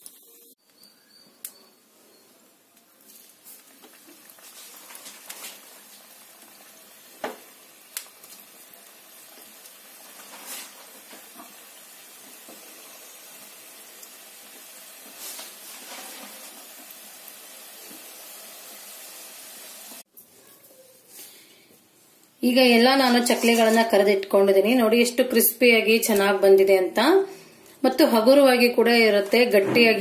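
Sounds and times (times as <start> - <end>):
food sizzling in hot oil: 2.9 - 20.1, 22.4 - 26.5.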